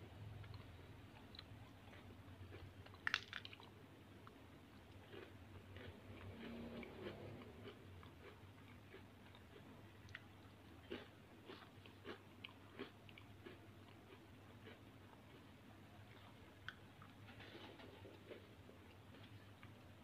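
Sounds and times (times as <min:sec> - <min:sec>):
faint low hum: 0:00.0 - 0:20.0
cookies crumbling in a palm: 0:02.9 - 0:03.7.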